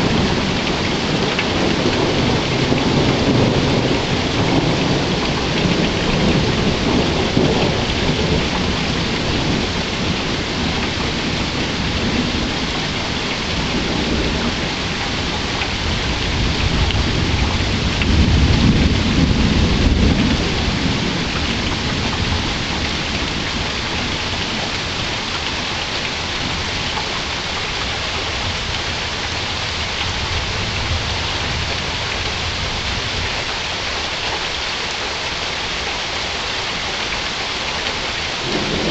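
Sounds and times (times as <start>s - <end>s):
rolling thunder: 0.0s - 26.9s, 38.4s - 38.9s
steady rain falling: 0.0s - 38.9s.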